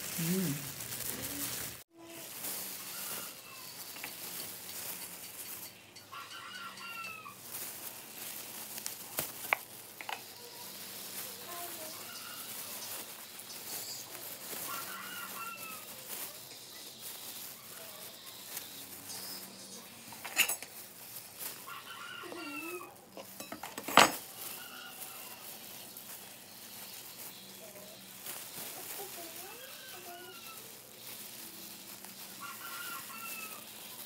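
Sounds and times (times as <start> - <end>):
chickens clucking: 2.6 - 8.4.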